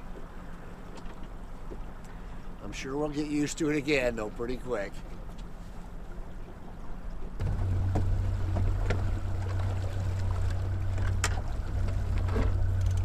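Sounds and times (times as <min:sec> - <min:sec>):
outboard motor running: 0:04.9 - 0:13.0.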